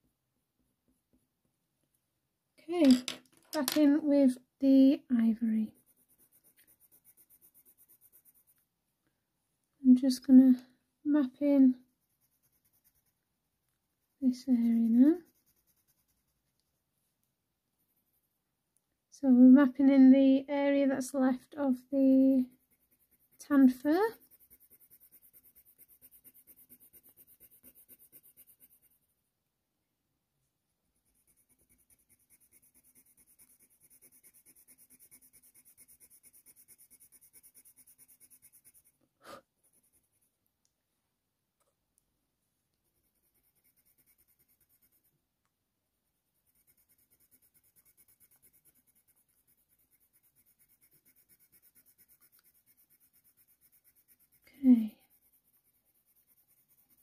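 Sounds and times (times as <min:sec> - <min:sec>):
colour pencil scratching on paper: 0:03.5 - 0:08.7, 0:10.1 - 0:13.3, 0:14.1 - 0:18.4, 0:21.0 - 0:29.1, 0:31.0 - 0:40.4, 0:42.8 - 0:45.2, 0:46.3 - 0:57.0.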